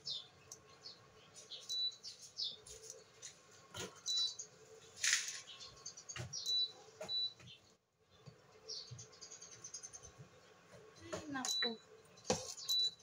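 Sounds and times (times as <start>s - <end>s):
cooktop high beeps: 12.7s - 13.0s.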